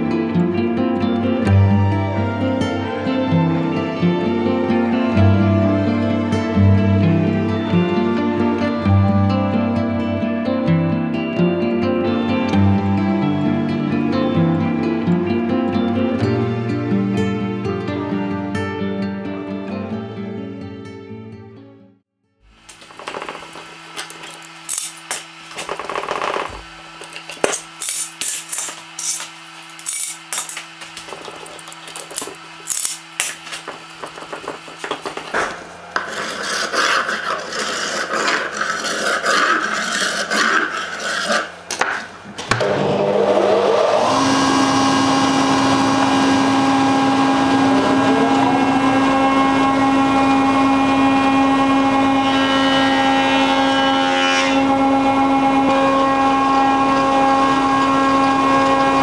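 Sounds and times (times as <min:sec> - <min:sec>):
planer motor spinning: 0:22.6 - 0:59.0
hand scraper rasping on wood: 0:23.0 - 0:42.1.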